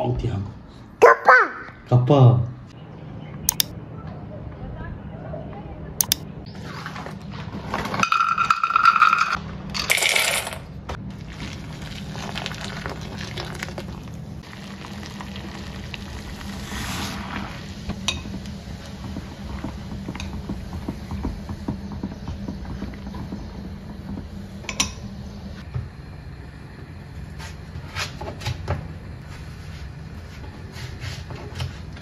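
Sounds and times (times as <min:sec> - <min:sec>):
water pouring: 0:11.1 - 0:17.8.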